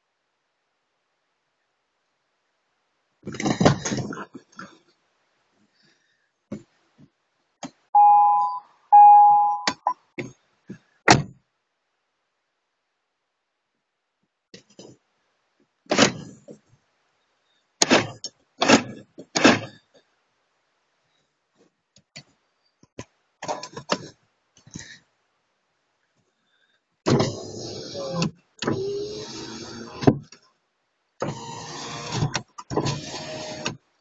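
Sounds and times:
car horn honks: 0:08.0 - 0:09.8.

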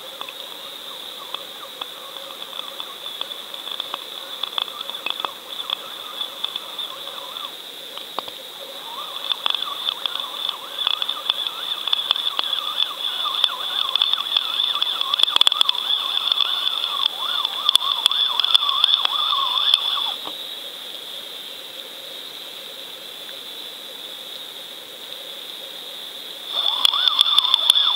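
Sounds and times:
steady high whine: 0:00.0 - 0:20.8, 0:26.4 - 0:27.9
sharp underwater clicks: 0:00.1 - 0:20.4, 0:26.5 - 0:27.9.

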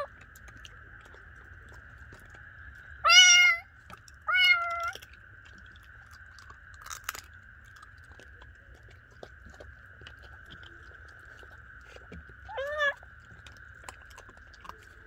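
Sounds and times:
kitten meowing: 0:03.0 - 0:03.7, 0:04.3 - 0:05.0, 0:12.5 - 0:13.0.

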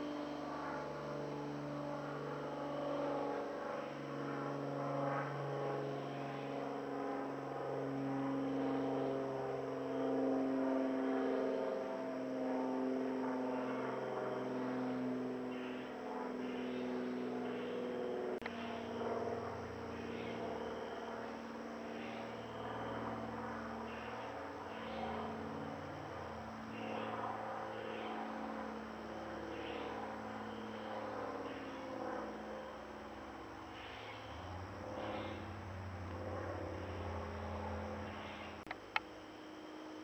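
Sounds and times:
insects chirping: 0:00.1 - 0:40.0
mechanical drone: 0:15.4 - 0:40.0.

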